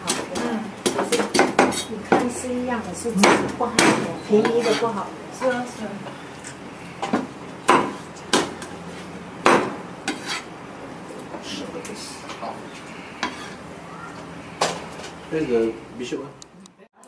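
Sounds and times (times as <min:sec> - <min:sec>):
knife chopping on wooden board: 0:00.1 - 0:02.3, 0:07.1 - 0:08.7, 0:09.4 - 0:10.4.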